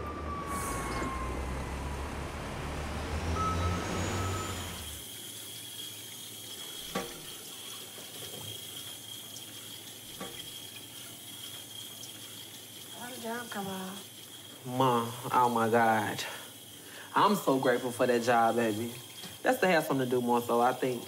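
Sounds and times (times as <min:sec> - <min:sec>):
street traffic rumble: 0:00.0 - 0:05.0
tap running into metal sink: 0:06.9 - 0:09.0, 0:09.6 - 0:10.6.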